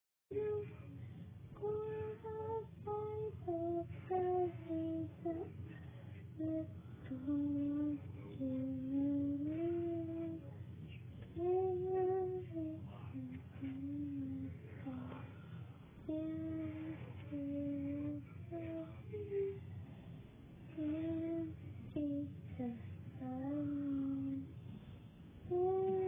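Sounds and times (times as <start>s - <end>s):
boy singing: 0.3s - 0.8s, 1.6s - 5.7s, 6.4s - 10.5s, 11.3s - 15.3s, 16.0s - 19.6s, 20.7s - 24.5s, 25.5s - 26.0s.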